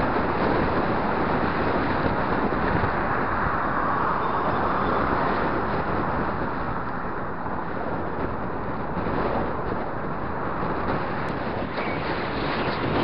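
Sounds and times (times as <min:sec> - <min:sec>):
wind on microphone: 0:00.0 - 0:13.0
cars driving past: 0:01.1 - 0:07.8.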